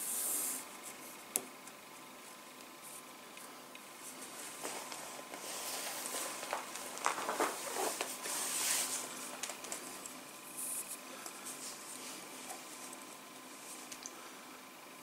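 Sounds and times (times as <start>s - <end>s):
cord rustling and rubbing: 3.9s - 14.0s.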